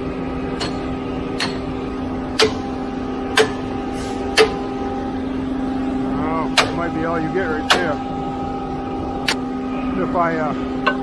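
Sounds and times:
pump truck engine drone: 0.0s - 11.0s
hammer striking steel clamp: 0.6s - 1.7s, 2.4s - 2.7s, 3.3s - 4.6s.

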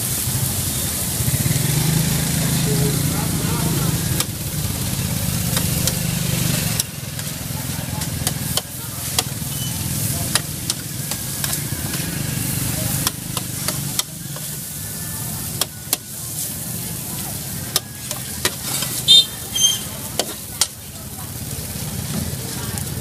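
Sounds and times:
noodles sizzling: 0.0s - 23.0s
spatula clanking: 6.7s - 20.8s
metal spatula scraping steel pan: 18.0s - 20.4s.

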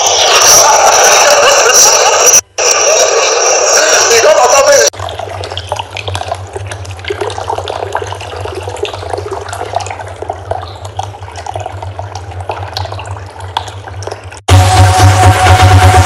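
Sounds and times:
water trickling and splashing: 4.9s - 14.5s.

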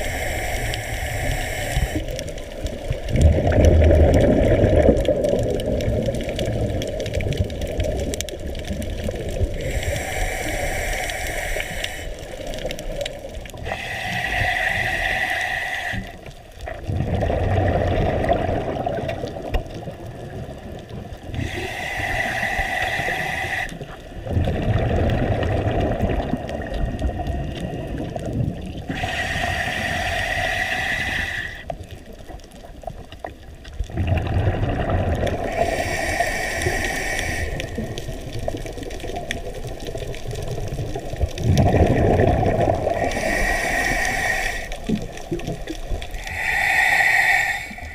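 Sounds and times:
hissing regulator inhales: 0.0s - 2.2s, 9.6s - 12.6s, 13.6s - 16.3s, 21.4s - 24.0s, 28.9s - 31.8s, 35.4s - 38.0s, 43.0s - 44.8s, 46.1s - 47.9s
bubbling exhales: 0.0s - 32.0s, 33.8s - 47.9s.

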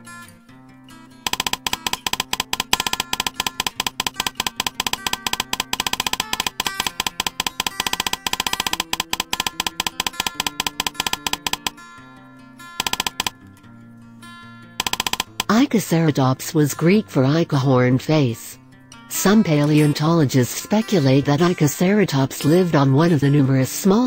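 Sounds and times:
quick steady percussion beat: 1.3s - 11.7s.

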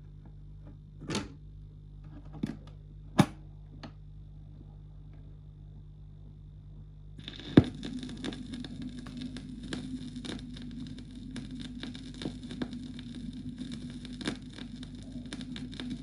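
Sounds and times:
record surface crackle: 3.6s - 16.0s
record scratch clicks: 7.2s - 16.0s.

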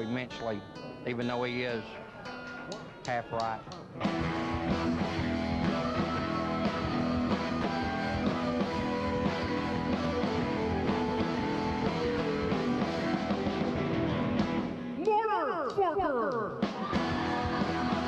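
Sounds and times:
strummed guitars: 0.0s - 15.2s, 16.6s - 18.0s
live rock band playing: 3.9s - 15.2s, 16.5s - 18.0s.

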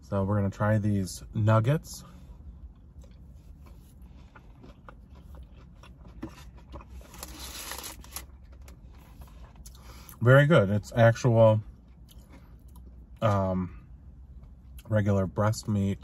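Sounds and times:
low steady hum: 0.0s - 16.0s
person chewing crunchy food: 2.3s - 10.2s, 11.7s - 13.3s.

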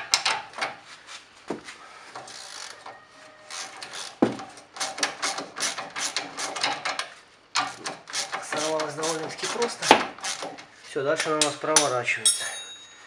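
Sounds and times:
wrench scraping: 0.0s - 0.8s, 2.2s - 12.8s
ratchet clicking: 3.5s - 10.6s.

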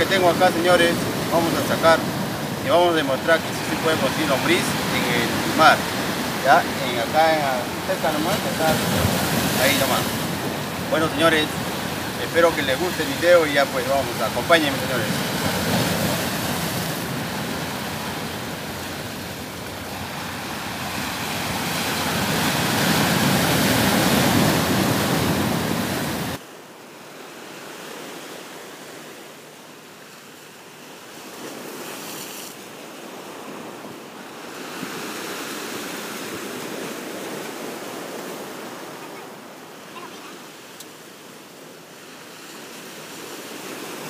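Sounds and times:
waves breaking over rocks: 0.0s - 26.4s.

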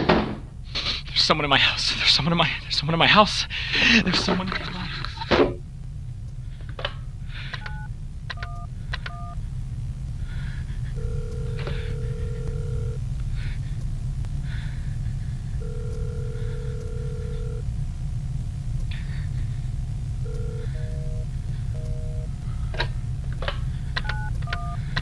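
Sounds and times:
telephone keypad tones: 7.6s - 9.4s, 11.0s - 13.0s, 15.6s - 17.6s, 20.3s - 21.2s, 21.8s - 22.3s, 24.0s - 24.8s
telephone ringback tone: 11.0s - 13.0s, 15.6s - 17.6s, 20.3s - 22.3s, 24.0s - 24.8s.

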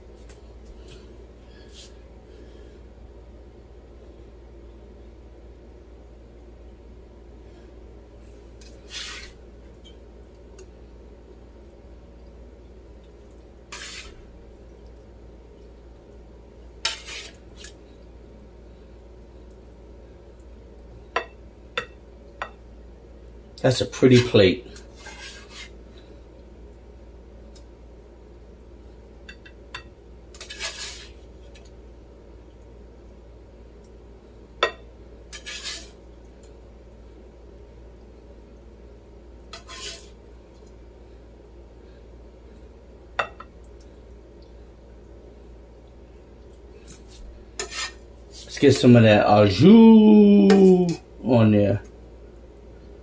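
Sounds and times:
tongs scraping and clinking pan: 8.6s - 9.4s, 13.7s - 14.2s, 16.8s - 17.7s, 24.1s - 25.8s, 29.3s - 31.2s, 34.6s - 36.0s, 39.5s - 40.1s, 47.6s - 48.1s.

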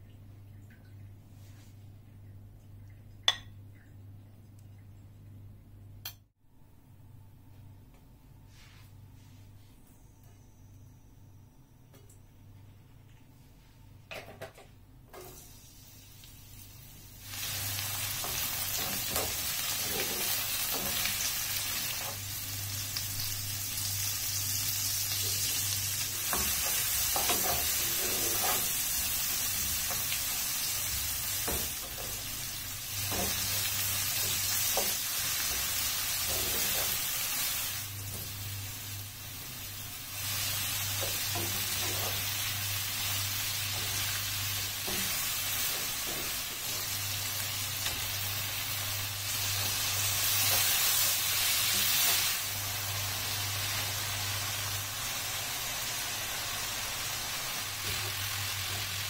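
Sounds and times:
onions sizzling in hot oil: 15.2s - 59.0s
spatula scraping a pan: 26.3s - 30.1s.

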